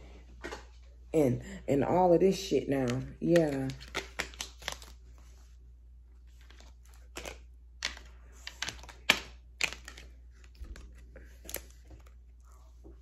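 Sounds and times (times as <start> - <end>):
cards snapping and tapping: 2.8 - 4.9, 6.5 - 10.8.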